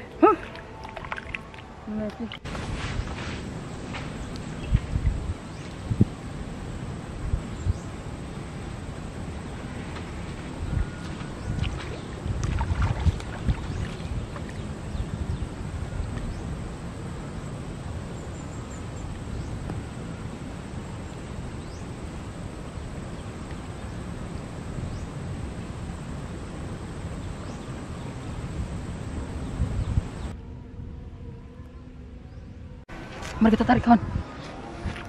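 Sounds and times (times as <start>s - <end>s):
wind buffeting microphone: 0.0s - 35.0s.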